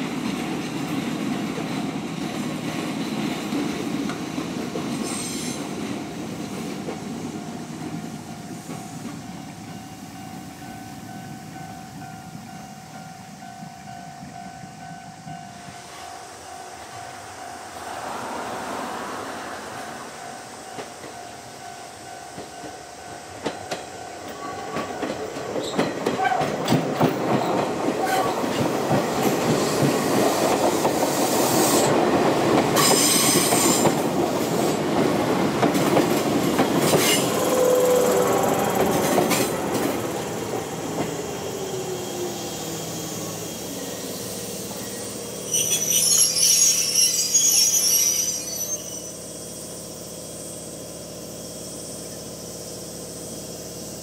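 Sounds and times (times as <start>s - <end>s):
train wheels squealing: 4.8s - 5.9s, 6.9s - 32.0s, 32.6s - 35.0s, 35.6s - 54.0s
train wheels clacking: 19.6s - 49.0s.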